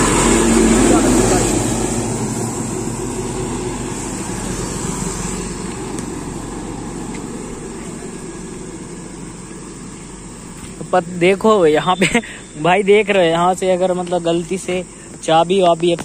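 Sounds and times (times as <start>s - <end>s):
car engine hum: 0.0s - 16.0s
road noise: 0.0s - 16.0s.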